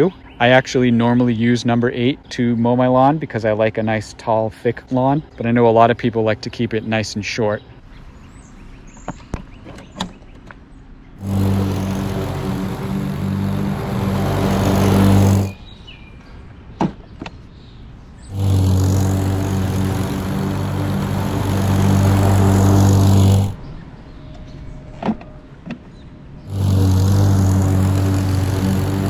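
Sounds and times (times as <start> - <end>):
lawn mower engine running: 11.2 - 15.6, 18.3 - 23.6, 26.5 - 29.0.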